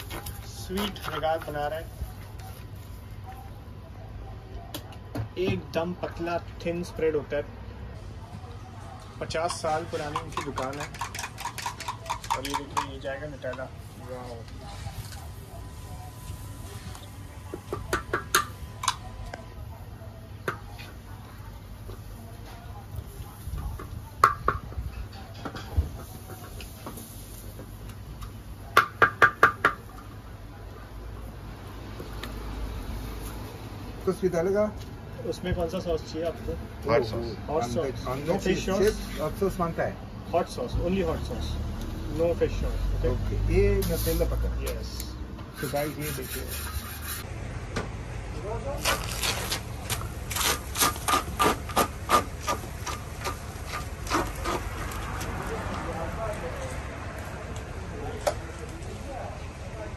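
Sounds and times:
palm smearing dough on griddle: 45.5s - 47.3s.

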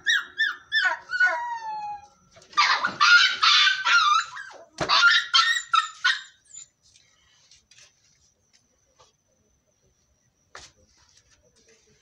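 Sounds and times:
puppy yelping: 0.0s - 6.7s.

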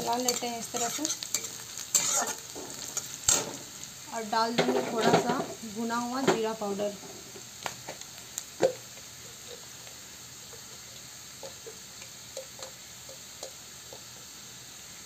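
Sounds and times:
spatula scraping and tapping pan: 0.0s - 3.6s, 8.6s - 14.2s
onions sizzling in oil: 0.0s - 15.0s.

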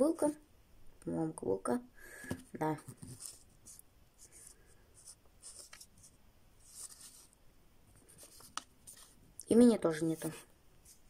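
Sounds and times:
fingers rustling plastic figurine: 2.2s - 11.0s.

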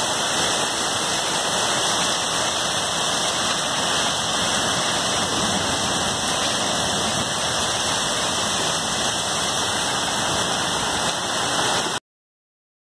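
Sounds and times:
hail and heavy rain pelting ground: 0.0s - 12.0s.

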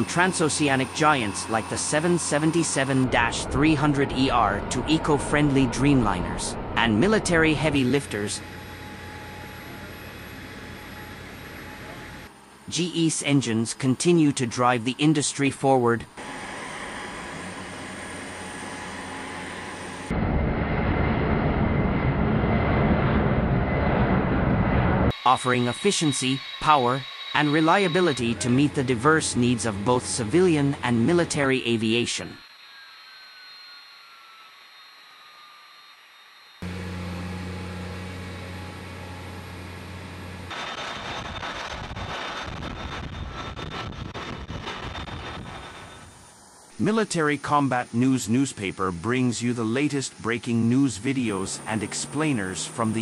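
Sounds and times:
jet engines deep rumble: 0.0s - 32.5s, 36.6s - 53.0s
faint aircraft hum with high tone: 0.0s - 40.5s.

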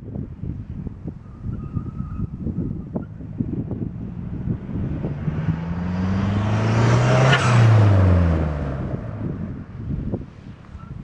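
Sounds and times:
car accelerating past: 3.9s - 9.7s.

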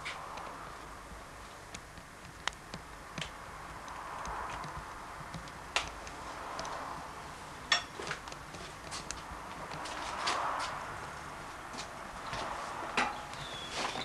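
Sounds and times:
low steady background hiss: 0.0s - 4.1s.

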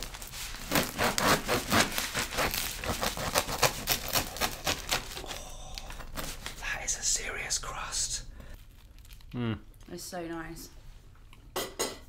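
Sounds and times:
bread knife sawing crust: 0.6s - 5.2s.

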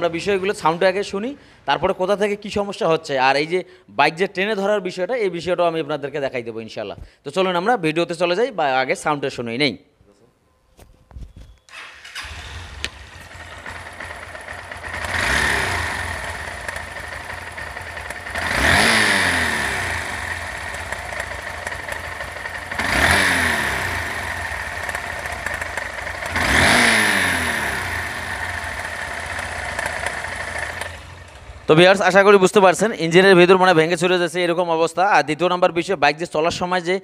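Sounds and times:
engine internal mechanical noise: 11.7s - 31.7s
motorcycle engine idling and revving: 11.7s - 32.2s.

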